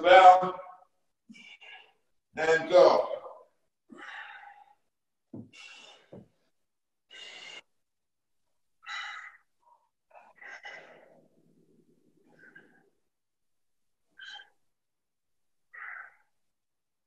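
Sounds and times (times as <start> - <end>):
man breathing hard: 3.9 - 6.4, 7.1 - 7.8.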